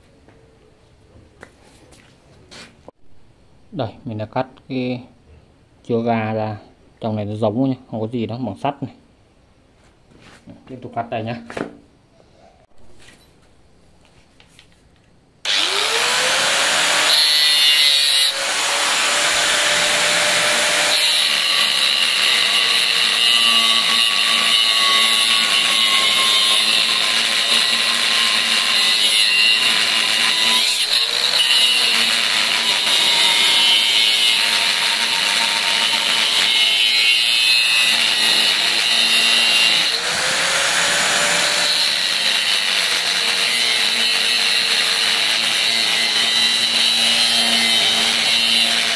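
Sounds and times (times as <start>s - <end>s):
angle grinder cutting steel: 15.4s - 48.9s.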